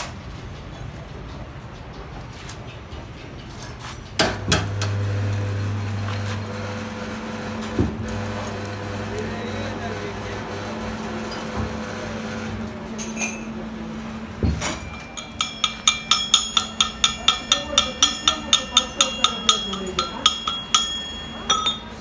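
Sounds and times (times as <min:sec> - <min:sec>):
chipping hammer striking metal: 0:14.4 - 0:22.0
steel pin ringing: 0:14.6 - 0:22.0.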